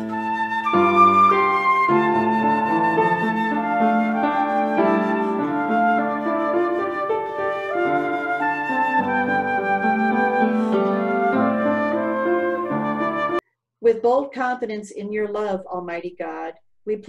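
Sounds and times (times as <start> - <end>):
flute playing a melody: 0.0 - 13.4.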